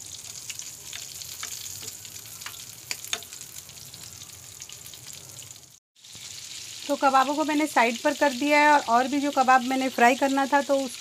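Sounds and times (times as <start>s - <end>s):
meat sizzling in oil: 0.0s - 11.0s
metal spoon clicking on pan: 0.9s - 3.4s.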